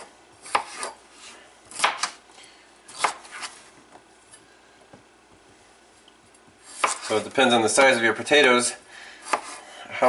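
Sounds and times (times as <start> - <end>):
knife chopping on plastic board: 0.0 - 1.0, 1.7 - 2.2, 2.9 - 3.5, 6.7 - 7.1, 9.3 - 9.6.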